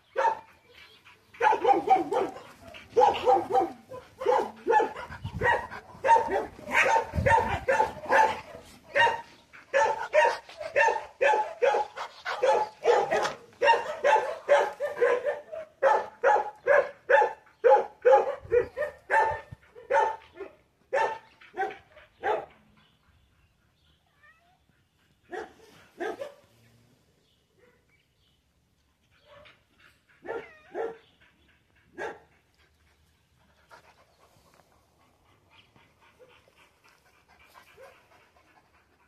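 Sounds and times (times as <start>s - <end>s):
dog barking: 0.2s - 0.5s, 1.4s - 22.5s, 25.3s - 26.5s, 30.2s - 31.0s, 32.0s - 32.3s.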